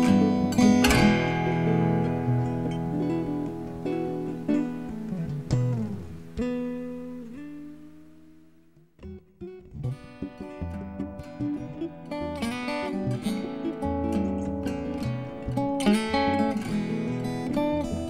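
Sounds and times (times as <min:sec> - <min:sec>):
acoustic guitar plucked notes: 0:00.0 - 0:18.0.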